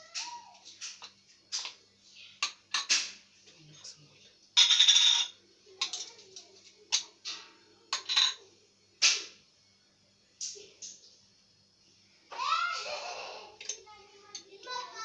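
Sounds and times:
jars and lids clinking: 2.4s - 3.1s, 4.6s - 6.1s, 7.9s - 8.4s.

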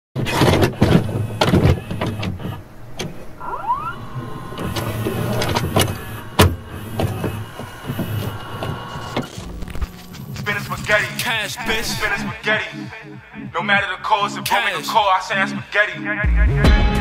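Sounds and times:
sharp clicks and knocks: 0.2s - 3.3s
mechanical whirring: 0.2s - 12.3s
short rising whine: 1.0s - 10.5s.

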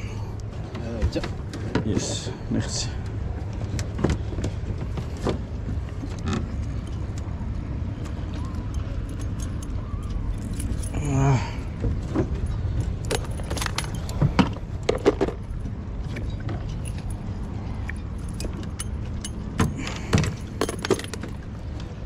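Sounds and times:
steady low rumble: 0.0s - 22.0s
metallic clinks of fishing gear: 8.6s - 11.4s, 12.4s - 14.2s, 14.8s - 21.6s.

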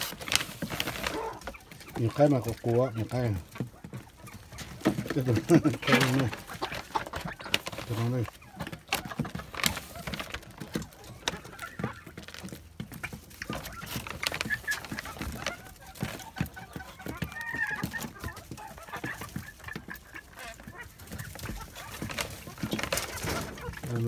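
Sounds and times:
chicks peeping and chirping: 0.0s - 24.0s
pecking and scratching in shavings: 0.0s - 24.0s.

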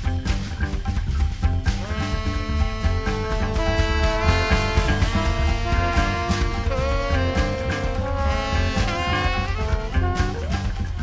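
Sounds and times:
jazz band playing: 0.0s - 11.0s
saxophone and trombone horn line: 1.7s - 11.0s.

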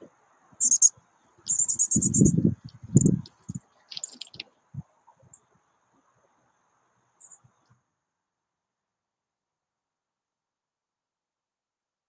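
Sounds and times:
faint steady hum: 0.0s - 10.2s
bird chirps and trills: 0.6s - 0.9s, 1.5s - 4.4s, 7.2s - 7.4s.

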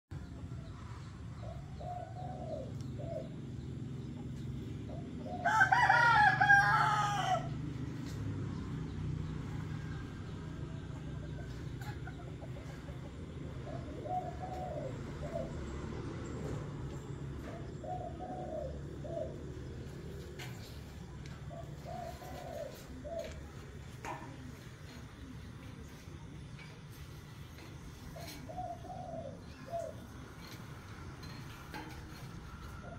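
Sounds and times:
rooster crowing: 5.4s - 7.6s.

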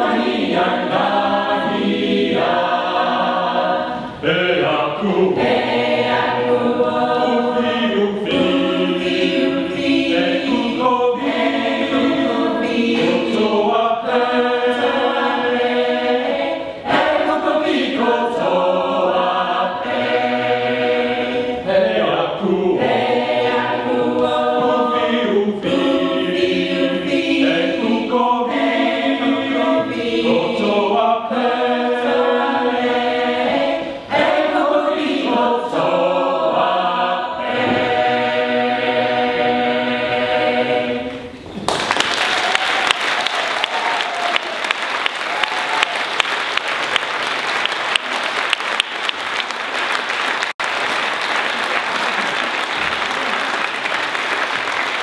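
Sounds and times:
choir singing in harmony: 0.0s - 41.6s
audience applause: 41.6s - 55.0s.

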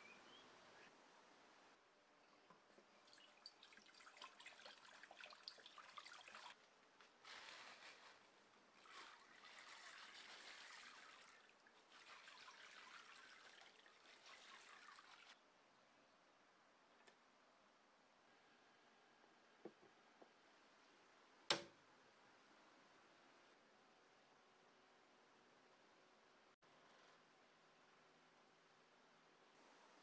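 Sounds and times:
water swishing and trickling: 2.2s - 15.4s.

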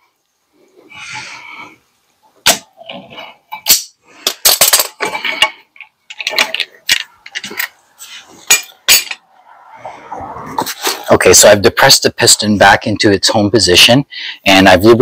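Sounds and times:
metal tools clanking: 4.5s - 7.8s, 8.4s - 9.2s.

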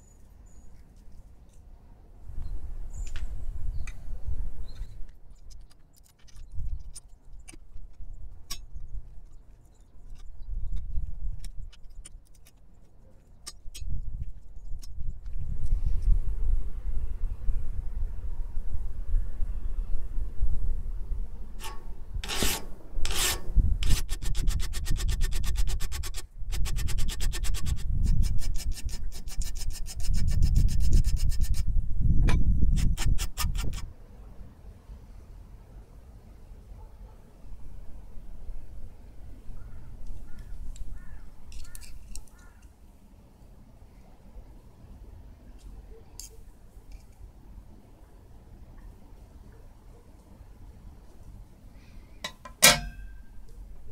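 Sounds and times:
wind rumble on microphone: 2.2s - 5.6s, 10.0s - 12.0s, 13.8s - 34.0s
hand file rasping on metal: 21.6s - 31.6s
small metallic clicks and clinks: 52.2s - 53.2s.

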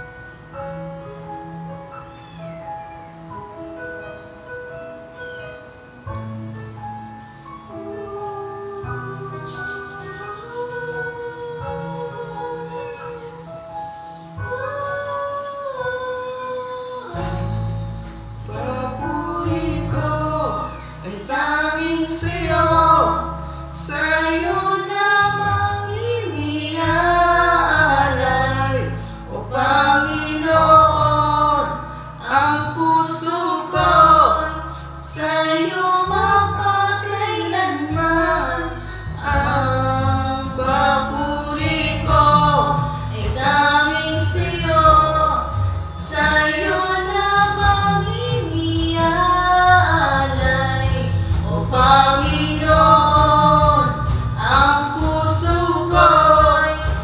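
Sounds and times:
man and woman singing a duet: 7.6s - 57.0s
backing track with bass line: 17.2s - 57.0s.

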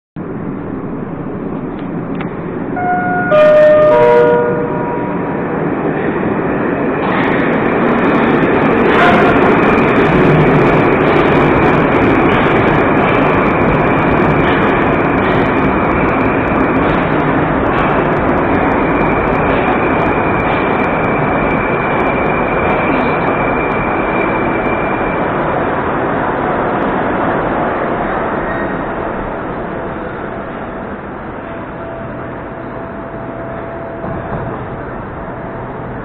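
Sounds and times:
metro train arriving: 0.2s - 36.0s
three-note falling signal: 2.8s - 5.4s.

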